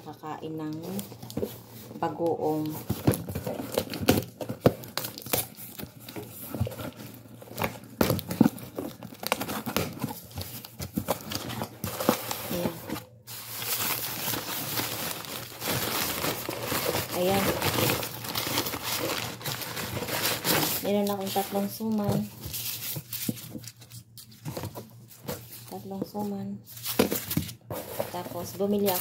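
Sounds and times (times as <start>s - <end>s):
newspaper crinkling: 0.7s - 29.0s.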